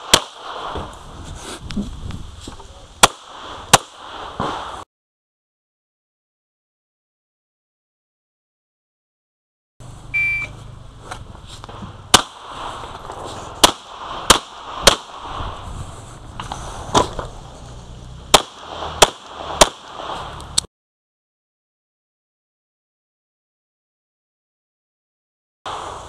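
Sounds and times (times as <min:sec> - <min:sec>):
pistol shots: 0:00.0 - 0:00.8, 0:03.0 - 0:04.8, 0:12.1 - 0:12.8, 0:13.6 - 0:15.3, 0:18.3 - 0:20.3
shot timer beep: 0:10.1 - 0:10.6.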